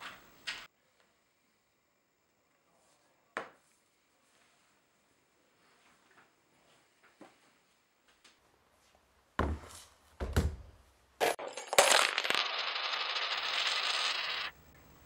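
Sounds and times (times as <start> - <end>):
coins clattering onto wooden floor: 11.2 - 14.5.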